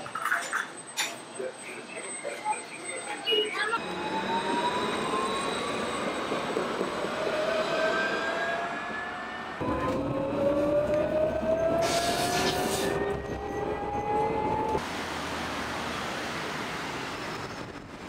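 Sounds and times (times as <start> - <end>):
tram motors whining: 0.6 - 14.8
wheels rumbling on rail: 3.1 - 18.0.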